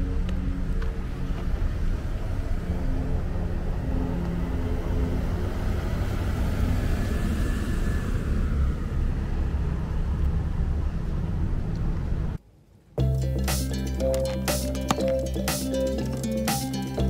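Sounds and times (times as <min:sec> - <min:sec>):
car driving past: 0:00.0 - 0:12.4
road traffic rumble: 0:00.0 - 0:12.4, 0:13.1 - 0:17.0.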